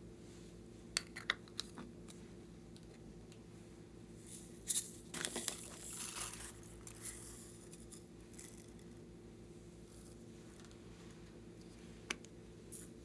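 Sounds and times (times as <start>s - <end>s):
plastic confetti rustling: 4.3s - 8.8s.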